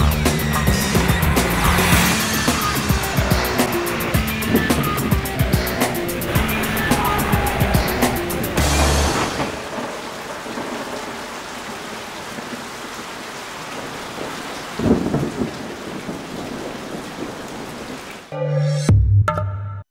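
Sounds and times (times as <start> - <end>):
steady rain falling: 0.0 - 18.3
low rumble of thunder: 14.2 - 18.0.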